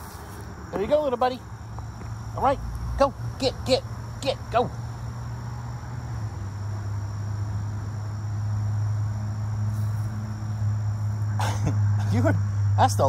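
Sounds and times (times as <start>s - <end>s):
insects trilling: 0.0s - 13.0s
low engine hum: 0.0s - 13.0s.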